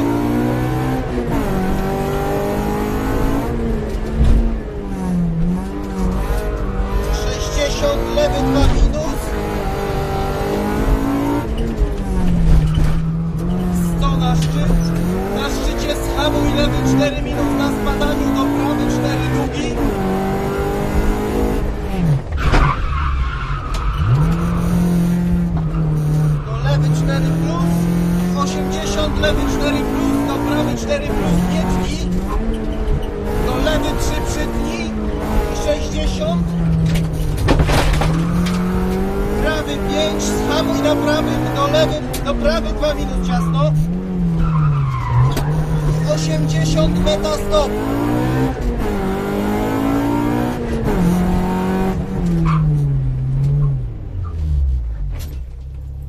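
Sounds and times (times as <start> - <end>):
car engine accelerating: 0.0 - 56.0
dull low thump: 4.0 - 4.7, 11.6 - 13.6, 36.4 - 38.7.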